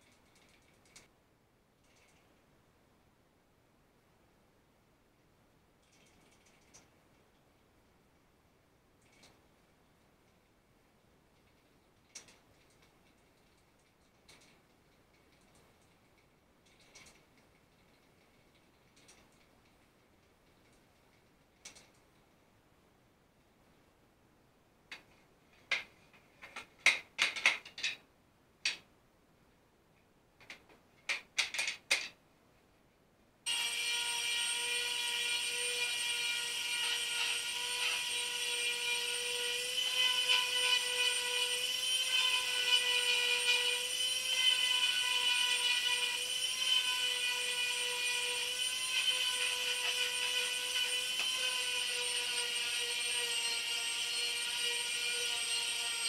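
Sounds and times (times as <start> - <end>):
sharp clicks and knocks: 11.4 - 22.3, 24.9 - 28.9, 30.4 - 32.2.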